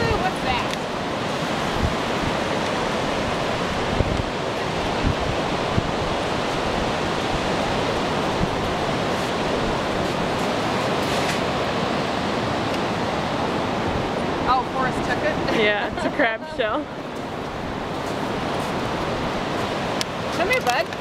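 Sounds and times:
ocean surf: 0.0 - 21.0
wind: 0.0 - 21.0.

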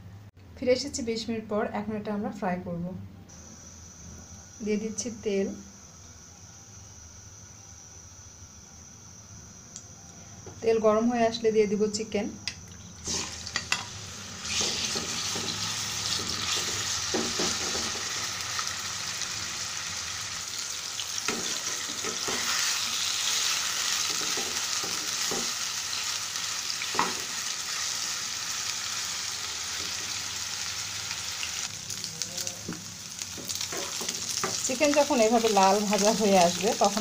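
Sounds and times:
chicken sizzling in hot oil: 13.0 - 37.0.

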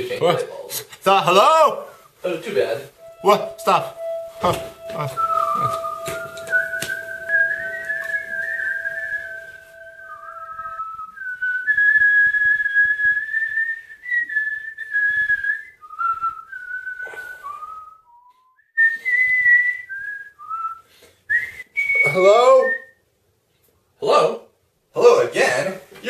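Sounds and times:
low steady tone: 3.0 - 11.7
person whistling a tune: 3.0 - 23.0.

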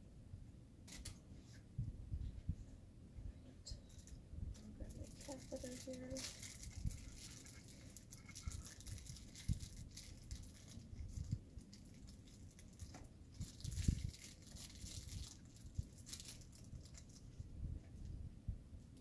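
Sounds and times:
packaging rustling and crinkling: 3.9 - 17.4.

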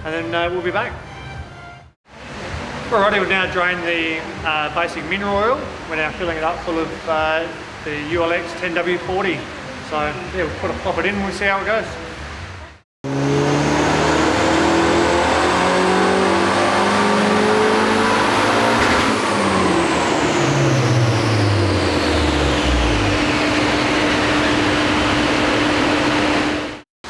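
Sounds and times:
car engine at full throttle: 12.0 - 26.8
steady hum: 19.2 - 26.8.

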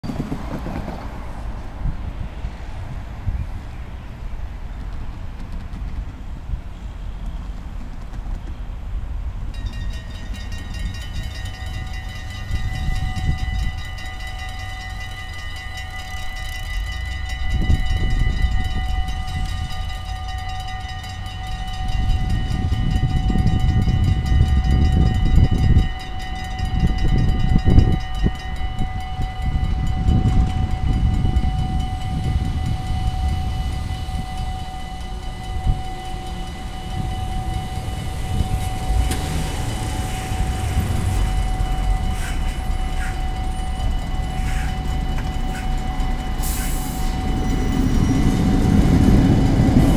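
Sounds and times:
level crossing warning bells: 9.4 - 49.9
low rumble: 36.6 - 44.3.

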